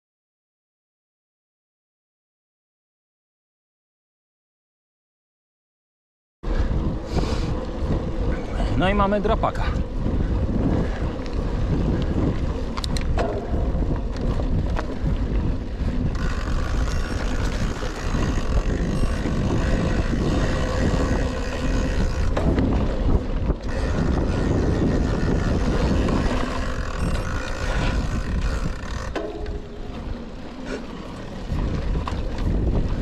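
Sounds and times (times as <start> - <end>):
bike tyre noise: 6.4 - 33.0
wind buffeting microphone: 6.4 - 33.0
bike knocks and rattles: 9.9 - 30.4.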